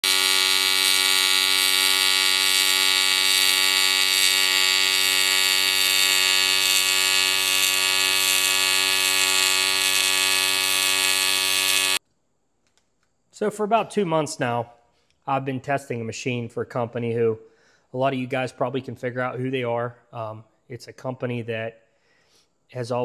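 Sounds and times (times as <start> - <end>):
welding arc buzzing: 0.0 - 12.0.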